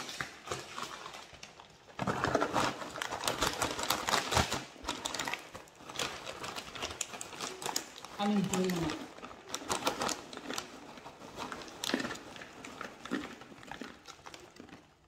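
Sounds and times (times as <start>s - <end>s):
plastic bag crinkling: 0.0s - 15.0s.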